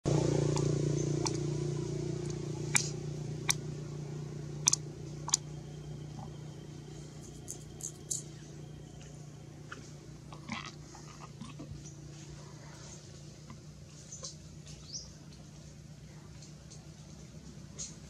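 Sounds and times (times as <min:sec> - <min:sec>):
steady low hum: 0:00.0 - 0:18.0
dry leaves crackling: 0:07.0 - 0:11.2.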